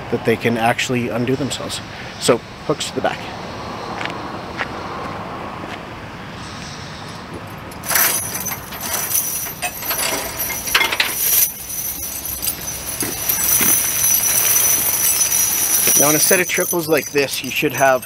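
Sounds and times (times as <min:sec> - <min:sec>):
tire chains clinking and jangling: 0:06.4 - 0:18.0.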